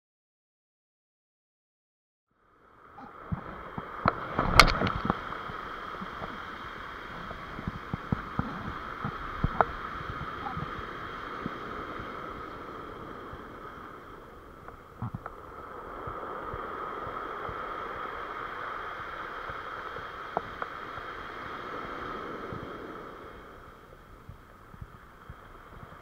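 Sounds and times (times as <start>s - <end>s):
surf on a pebble beach: 2.4s - 26.0s.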